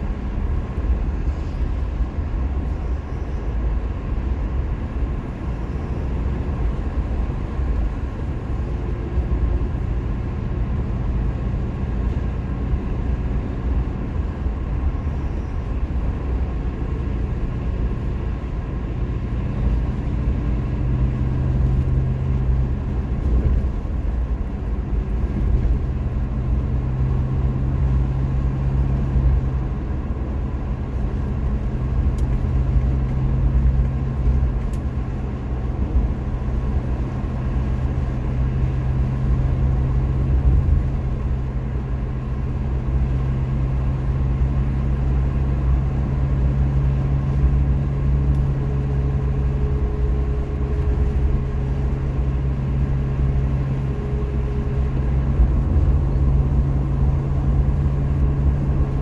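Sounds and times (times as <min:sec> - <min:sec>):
car engine drone: 0:00.0 - 0:59.0
tyre road noise: 0:00.0 - 0:59.0.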